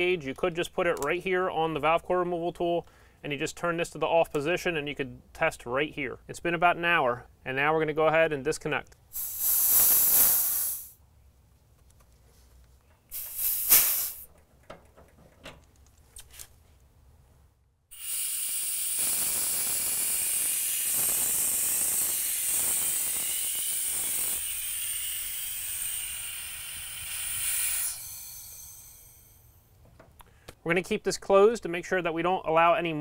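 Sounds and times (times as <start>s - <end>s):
gas hissing from line: 9.1s - 11.0s, 13.1s - 14.3s, 17.9s - 29.6s
short sharp hiss: 9.1s - 11.0s, 13.1s - 14.3s, 17.9s - 29.6s.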